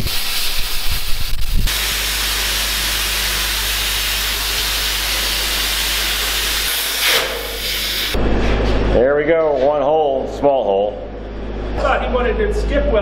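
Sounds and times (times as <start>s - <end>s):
plasma torch hissing: 0.0s - 8.2s
low steady hum: 8.2s - 13.0s.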